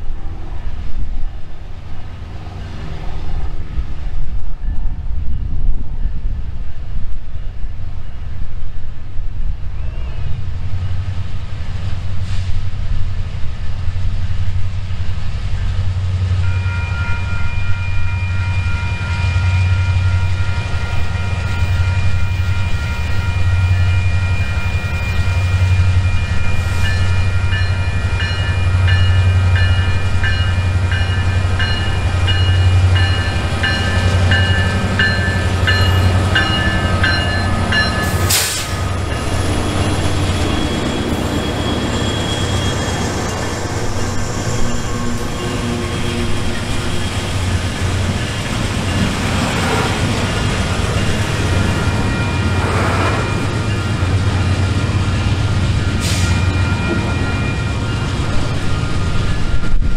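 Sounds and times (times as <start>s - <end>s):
sustained high tones: 16.6s - 59.9s
locomotive engine rumble: 19.5s - 59.9s.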